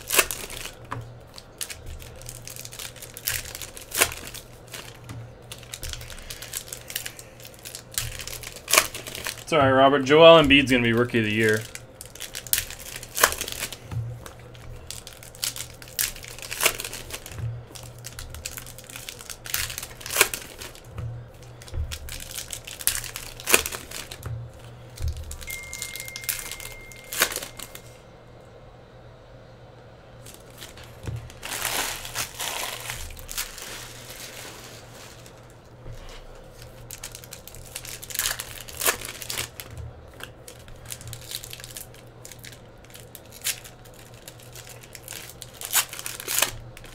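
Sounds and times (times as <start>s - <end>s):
foil wrappers crinkling and tearing: 0.0s - 28.0s, 30.2s - 46.9s
trading cards handled: 10.5s - 28.0s, 30.2s - 46.5s.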